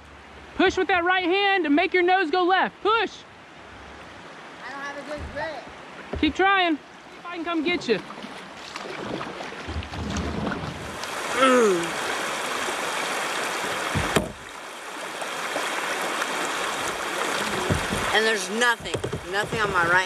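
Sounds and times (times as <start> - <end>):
water rushing over rocks: 4.0 - 20.0
brief vocal sound: 11.3 - 12.0
sharp knock: 13.9 - 14.4.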